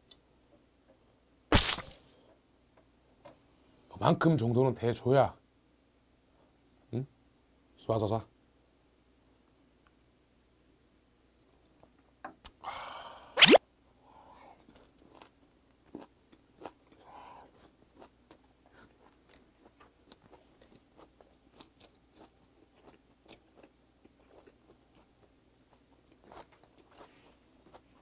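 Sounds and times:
person chewing food: 14.6s - 28.0s.

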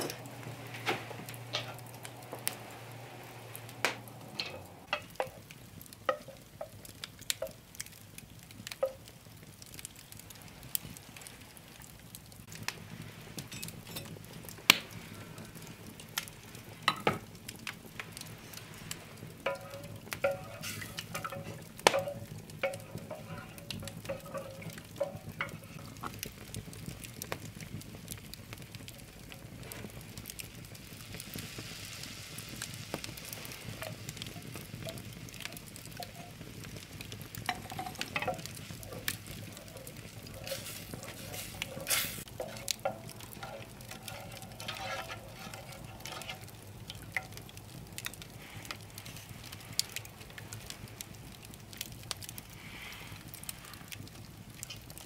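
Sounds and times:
wooden spoon stirring: 0.0s - 7.9s, 8.5s - 9.1s, 15.7s - 27.4s, 33.3s - 50.4s
butter sizzling: 0.0s - 55.0s
fire crackles and pops: 0.0s - 55.0s.

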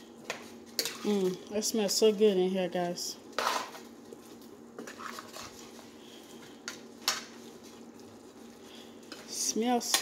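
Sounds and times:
faint steady hum: 0.0s - 10.0s
metal spoon stirring a pot: 0.7s - 1.2s.

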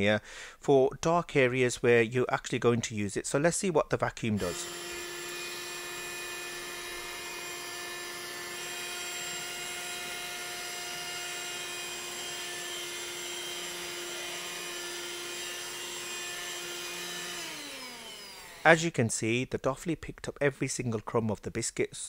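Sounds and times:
handheld vacuum cleaner running: 4.4s - 18.7s
vacuum motor spinning down: 4.4s - 18.7s.

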